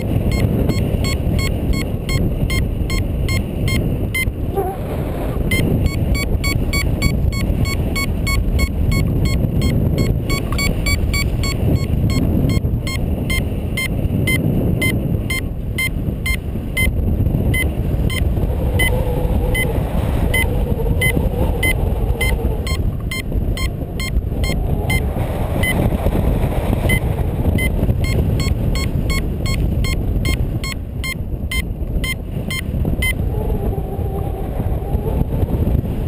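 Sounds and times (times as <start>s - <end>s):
variometer beeping: 0.0s - 4.7s, 5.4s - 19.7s, 20.3s - 25.9s, 26.8s - 33.2s
wind rushing over microphone: 0.0s - 36.0s.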